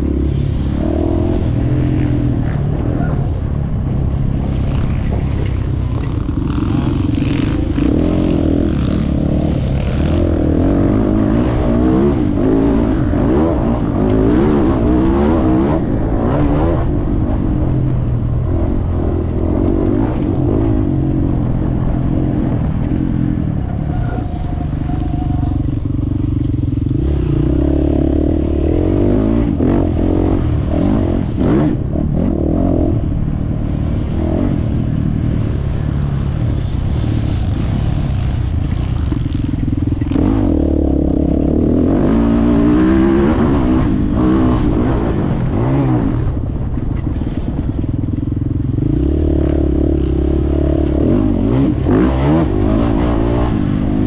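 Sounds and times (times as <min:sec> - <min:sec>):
motocross bike engine revving: 0:00.0 - 0:47.8, 0:48.4 - 0:54.0.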